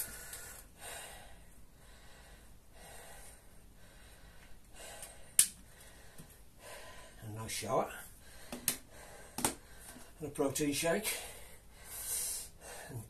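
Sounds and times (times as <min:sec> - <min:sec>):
man breathing hard: 0:00.0 - 0:07.3, 0:08.1 - 0:10.2, 0:11.0 - 0:13.0.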